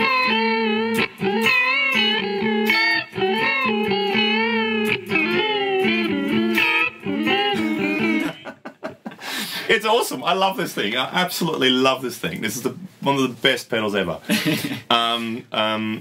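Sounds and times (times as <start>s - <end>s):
electric guitar with warbling chorus: 0.0s - 8.6s.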